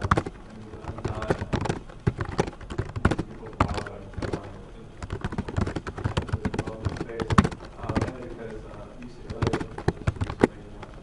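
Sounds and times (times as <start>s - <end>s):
computer keyboard key clicks: 0.0s - 0.3s, 0.9s - 8.2s, 9.3s - 10.5s.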